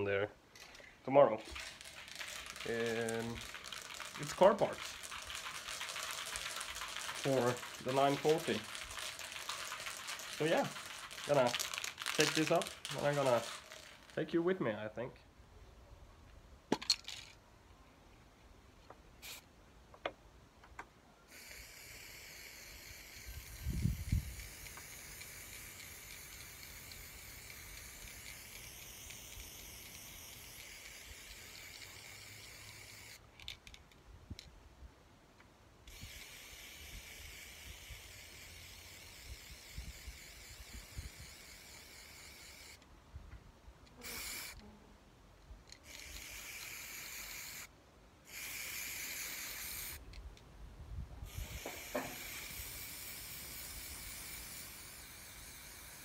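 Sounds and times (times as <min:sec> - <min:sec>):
spray-paint can hissing: 0:01.4 - 0:14.2, 0:19.2 - 0:19.4, 0:21.3 - 0:33.2, 0:35.9 - 0:42.8, 0:44.0 - 0:44.6, 0:45.8 - 0:47.7, 0:48.3 - 0:50.0, 0:51.3 - 0:56.0.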